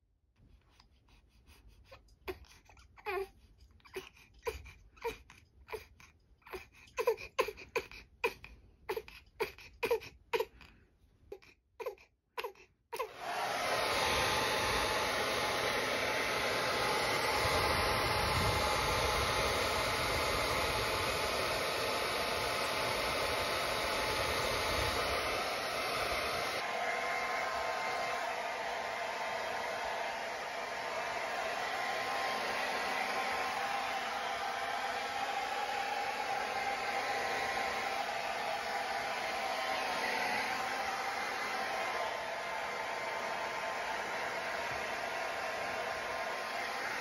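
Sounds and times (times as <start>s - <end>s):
baby crying: 2.2s - 10.7s, 11.3s - 13.2s
hair dryer running: 13.0s - 47.0s.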